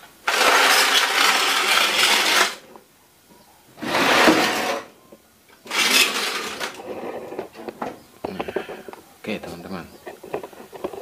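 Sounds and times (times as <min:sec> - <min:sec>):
television dragged across floor: 0:03.8 - 0:04.9.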